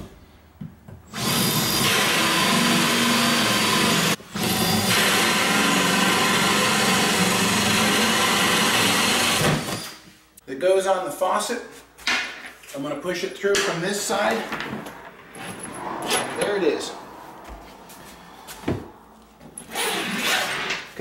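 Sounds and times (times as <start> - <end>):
power drill cutting wood: 1.1 - 10.0.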